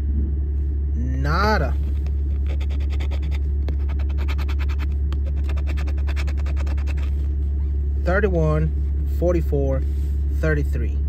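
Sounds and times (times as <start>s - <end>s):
steady low hum: 0.0s - 11.0s
coin scratching lottery ticket: 2.3s - 7.3s.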